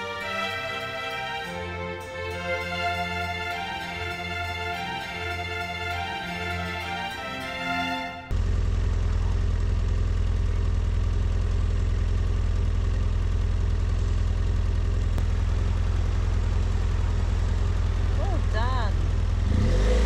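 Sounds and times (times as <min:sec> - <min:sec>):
motorcycle engine drone: 0:08.2 - 0:20.0.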